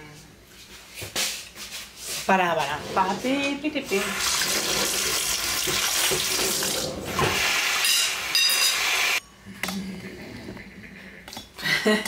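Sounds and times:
tap water running into sink: 0:04.0 - 0:07.5.

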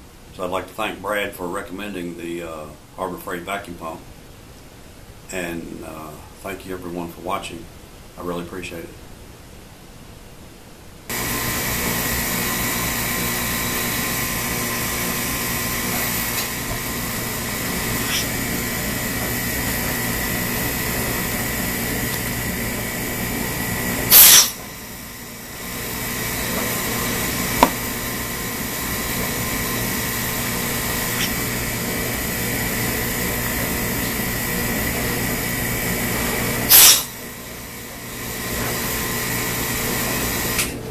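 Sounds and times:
loud air burst: 0:11.1 - 0:22.5, 0:23.6 - 0:32.7, 0:36.7 - 0:37.2
electric vacuum pump whining: 0:11.1 - 0:40.9.

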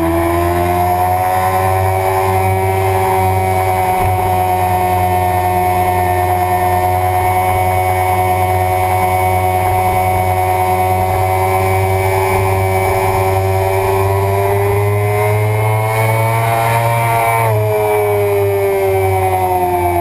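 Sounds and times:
motorcycle engine running: 0:00.0 - 0:20.0
heavy wind rush: 0:02.2 - 0:07.7.

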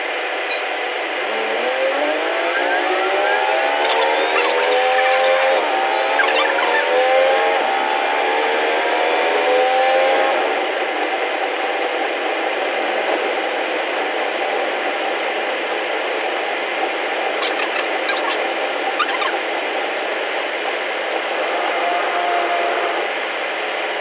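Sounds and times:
railcar engine rising in pitch: 0:00.0 - 0:24.0
train rushing run noise: 0:00.0 - 0:24.0.

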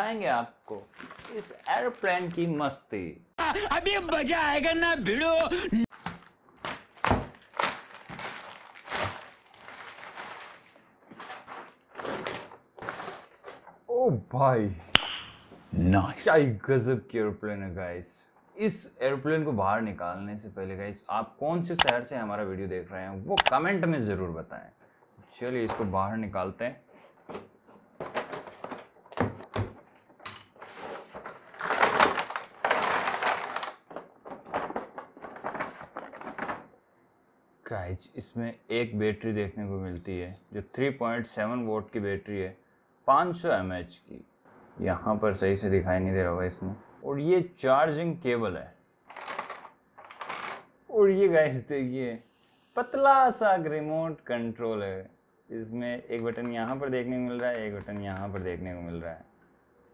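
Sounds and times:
plastic mailer bag tearing and crinkling: 0:00.9 - 0:02.4, 0:05.9 - 0:13.6, 0:30.7 - 0:36.7, 0:49.1 - 0:50.7.

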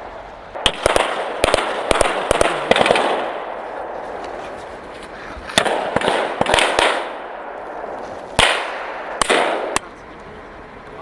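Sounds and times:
rifle shots echoing: 0:00.5 - 0:04.4, 0:05.6 - 0:09.9.

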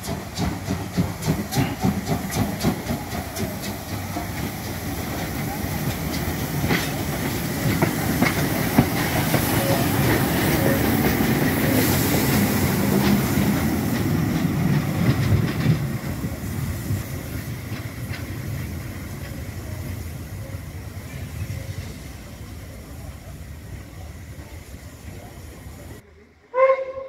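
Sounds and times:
wheels clicking over rail joints: 0:00.0 - 0:19.9
steam locomotive running: 0:00.0 - 0:27.0.

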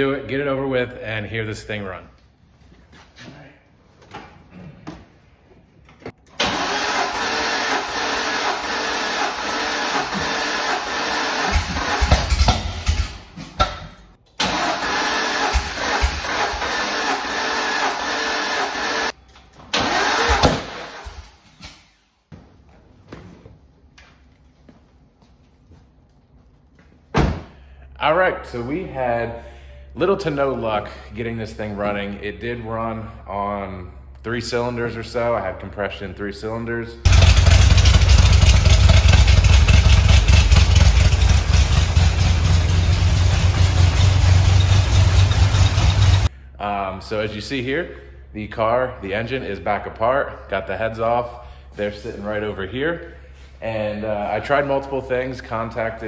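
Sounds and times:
car engine running roughly: 0:06.6 - 0:13.0, 0:37.1 - 0:46.3.

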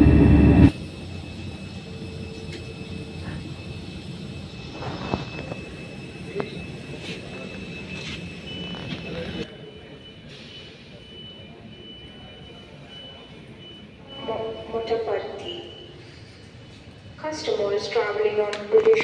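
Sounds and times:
thin high whine: 0:00.0 - 0:09.4
jet airliners humming: 0:00.0 - 0:10.1.

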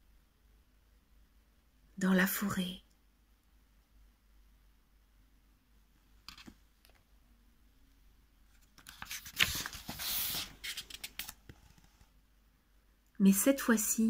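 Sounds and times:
book page rustling as turned: 0:06.2 - 0:06.6, 0:08.5 - 0:12.1.

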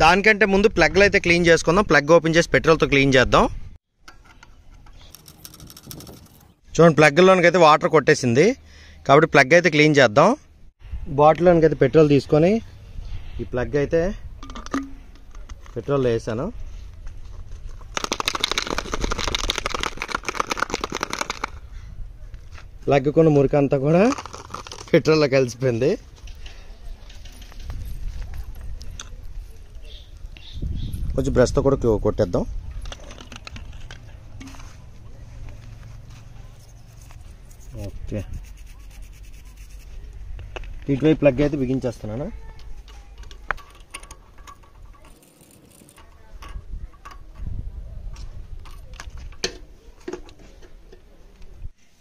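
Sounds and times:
spark plug rattling in bottle: 0:05.0 - 0:06.5, 0:17.8 - 0:21.6, 0:24.0 - 0:25.2, 0:43.2 - 0:47.3.

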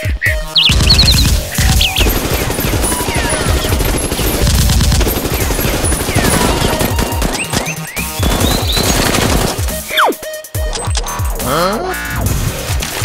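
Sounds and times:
automatic gunfire: 0:00.7 - 0:09.9
falling whistles: 0:06.3 - 0:09.1.

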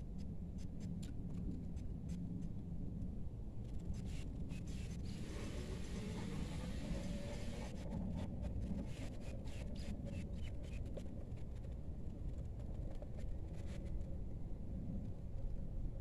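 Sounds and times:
light clicks and rustles: 0:07.9 - 0:14.2.

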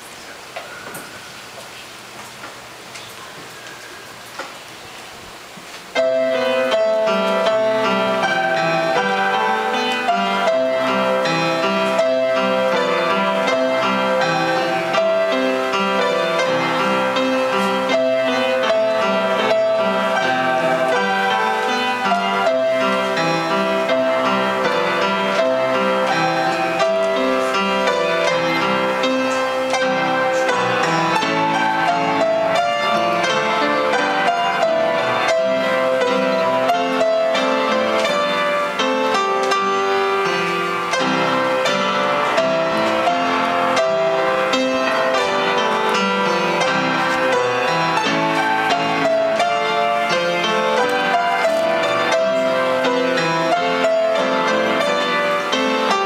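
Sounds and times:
upright piano duet: 0:00.0 - 0:56.0.

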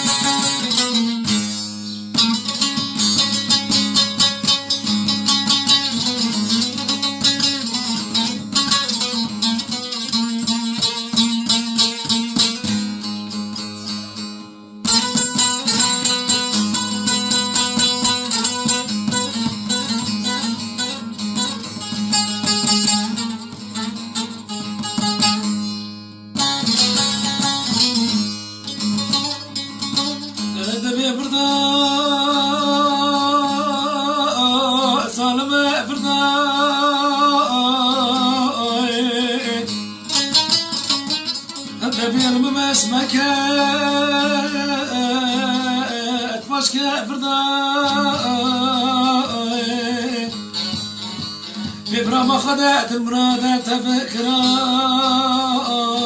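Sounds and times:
plucked lutes playing folk music: 0:00.0 - 0:56.0
man singing long held notes: 0:30.6 - 0:39.7, 0:41.8 - 0:50.4.

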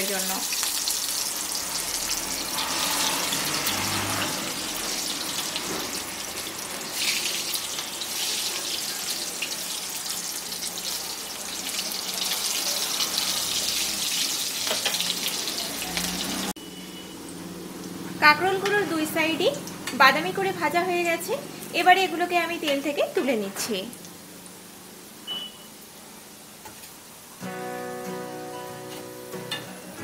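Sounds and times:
deep-frying crackling sizzle: 0:00.0 - 0:30.0.

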